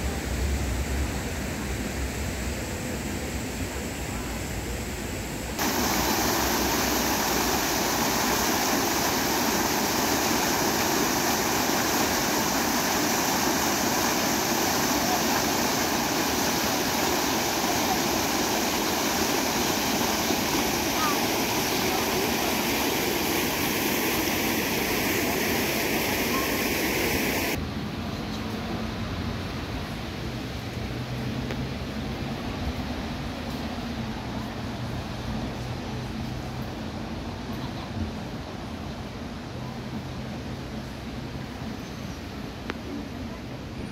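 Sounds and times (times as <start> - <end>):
fountain water splashing into basin: 5.6 - 27.6.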